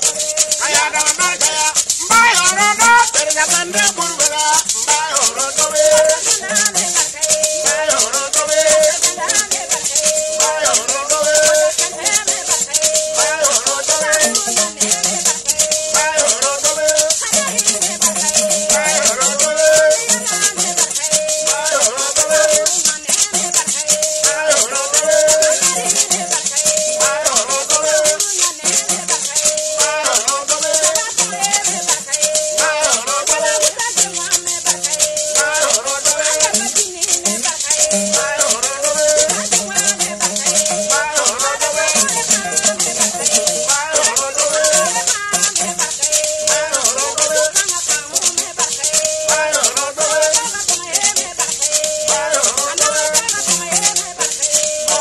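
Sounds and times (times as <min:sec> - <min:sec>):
gourd rattles shaken: 0:00.0 - 0:55.0
lute playing: 0:00.0 - 0:55.0
person singing wavering melody: 0:00.0 - 0:55.0.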